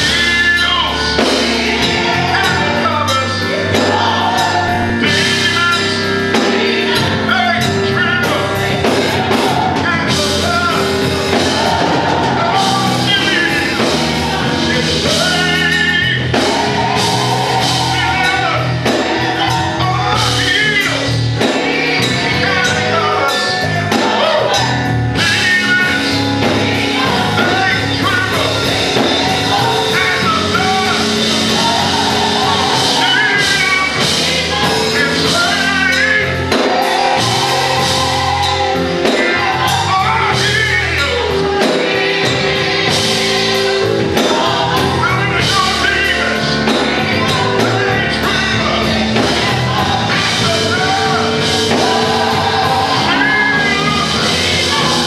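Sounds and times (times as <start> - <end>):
man singing into a microphone: 0.0 - 1.3, 14.7 - 16.4, 18.0 - 31.3, 33.0 - 36.7, 39.0 - 41.7, 44.2 - 55.0
church band playing gospel: 0.0 - 55.0.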